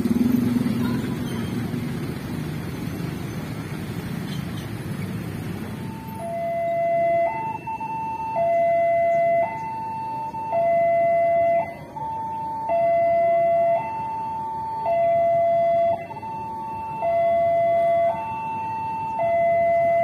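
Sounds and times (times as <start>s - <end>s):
level crossing two-tone alarm: 5.8s - 20.0s.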